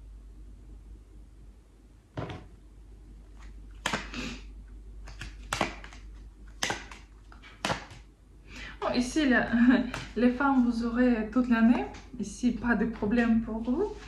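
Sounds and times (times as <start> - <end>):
cards shuffled by hand: 5.0 - 8.1.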